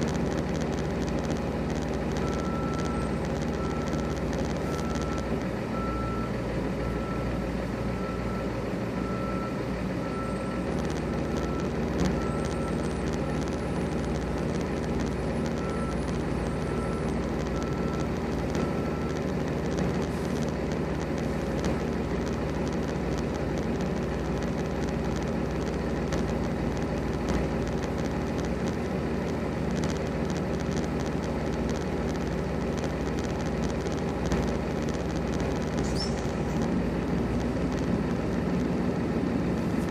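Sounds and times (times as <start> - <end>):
diesel trucks idling: 0.0 - 39.9
vehicle backup alarm beeping: 0.2 - 20.5.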